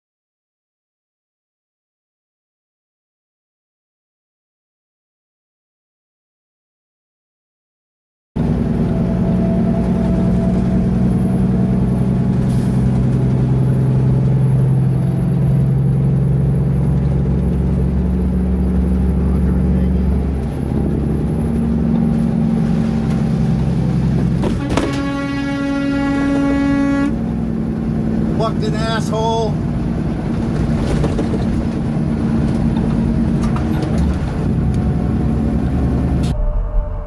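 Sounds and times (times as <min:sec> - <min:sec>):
engine drone: 0:08.4 - 0:37.0
road noise: 0:08.4 - 0:37.0.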